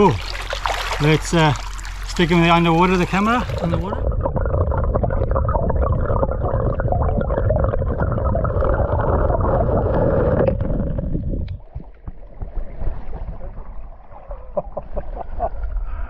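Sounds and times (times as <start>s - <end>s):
muffled underwater stream rushing: 0.0s - 16.0s.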